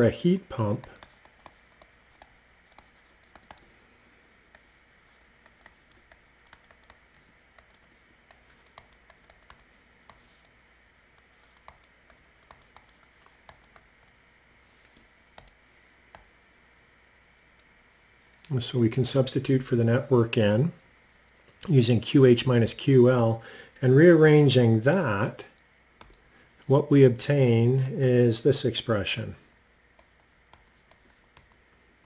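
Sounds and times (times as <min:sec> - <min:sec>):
stylus tapping on tablet screen: 0:00.8 - 0:03.8, 0:04.5 - 0:14.2, 0:14.8 - 0:16.3, 0:29.9 - 0:31.7.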